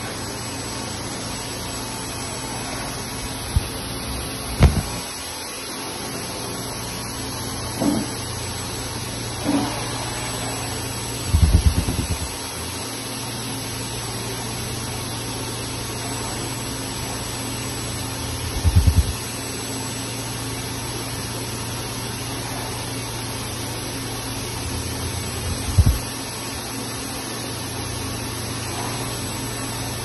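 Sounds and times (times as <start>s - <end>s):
welding machine humming: 0.8s - 6.0s, 10.7s - 14.0s, 16.5s - 28.5s
loud low pulsing burst: 11.3s - 12.4s, 18.4s - 19.2s, 25.1s - 26.1s.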